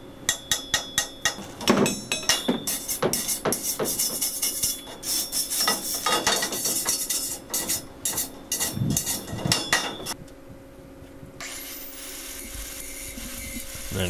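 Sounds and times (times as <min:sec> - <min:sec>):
wire brush scrubbing metal: 0:01.2 - 0:10.2.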